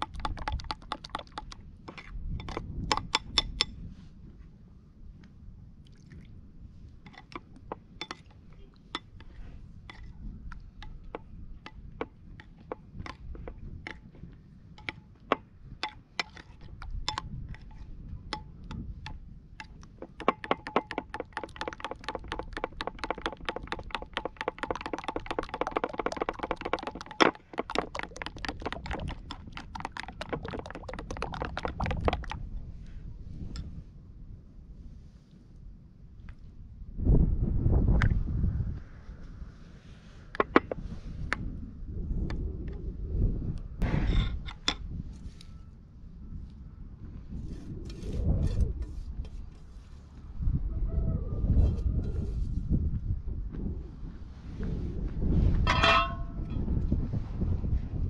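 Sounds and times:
spoon clinking against ceramic bowl: 0:55.7 - 0:56.4.

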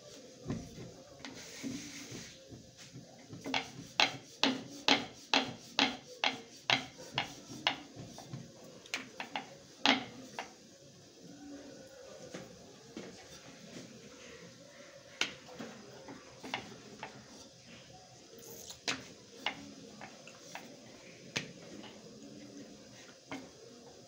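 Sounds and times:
rolling pin knocking on wooden board: 0:02.9 - 0:10.5.

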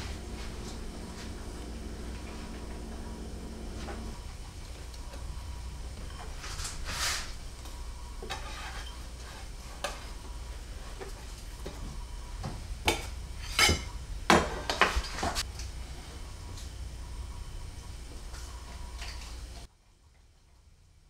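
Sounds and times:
low steady hum: 0:00.0 - 0:21.0
kitchenware clinking and scraping: 0:08.2 - 0:10.2, 0:12.9 - 0:15.4.

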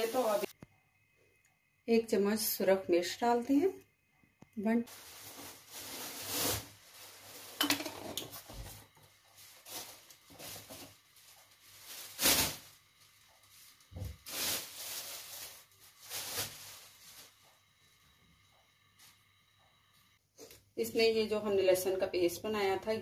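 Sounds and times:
kitchen utensils clattering: 0:07.5 - 0:08.3.

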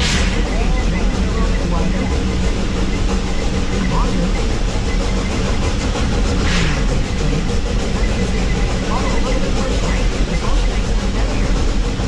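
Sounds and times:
steam hiss: 0:00.0 - 0:00.8
steam train rumbling on track: 0:00.0 - 0:12.0.

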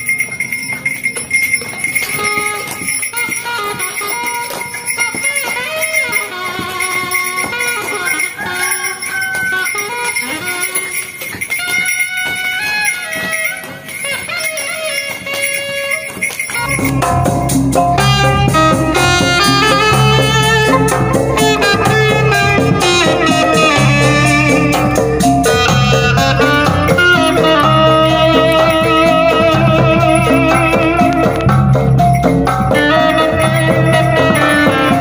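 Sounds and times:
melody with sliding notes: 0:00.0 - 0:35.0
music with strong bass beat: 0:16.6 - 0:35.0.

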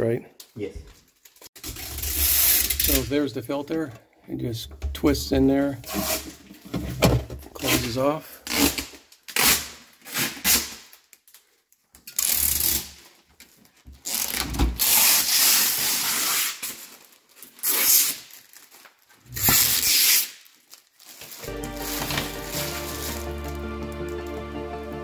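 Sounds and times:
plastic film peeling and crinkling: 0:01.0 - 0:03.0, 0:08.5 - 0:23.8.

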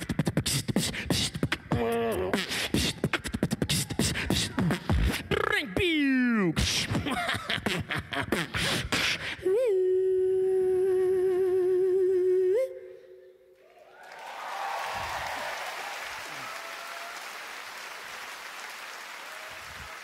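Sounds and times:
beatboxing: 0:00.0 - 0:09.6
audience applause: 0:13.6 - 0:20.0.

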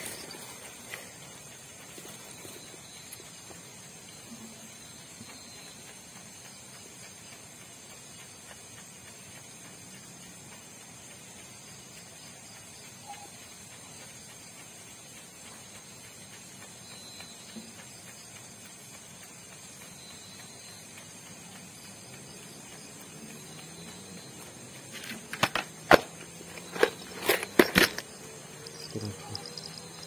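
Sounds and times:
night insects chirring: 0:00.0 - 0:30.0.

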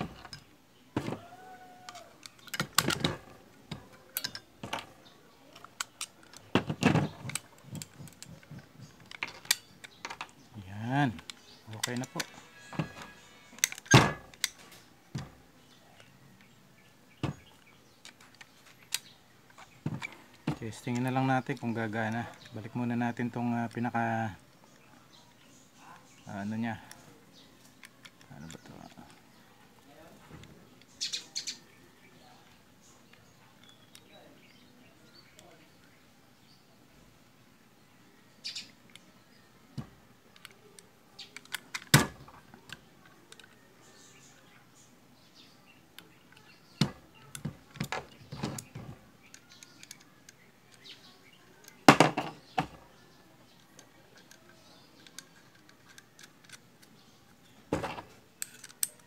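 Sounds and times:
small steel parts clicking: 0:01.8 - 0:03.1, 0:04.0 - 0:04.7, 0:07.2 - 0:10.3, 0:13.1 - 0:14.6, 0:46.0 - 0:51.9, 0:53.6 - 0:57.4, 0:58.3 - 0:59.0.

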